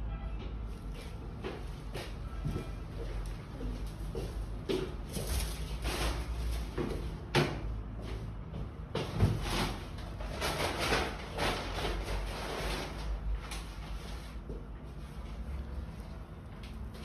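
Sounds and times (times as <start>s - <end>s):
rustling handling noise: 0.8s - 7.1s.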